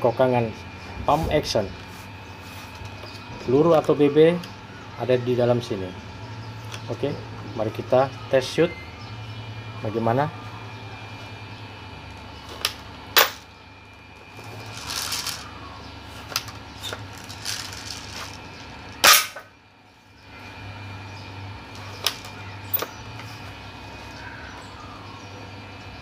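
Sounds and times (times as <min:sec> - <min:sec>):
airsoft shotgun cracks: 0:19.0 - 0:19.4.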